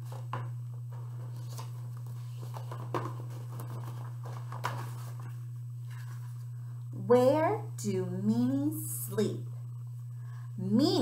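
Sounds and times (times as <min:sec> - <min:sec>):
paper pages rustling: 0:00.0 - 0:06.5
steady low hum: 0:00.0 - 0:11.0.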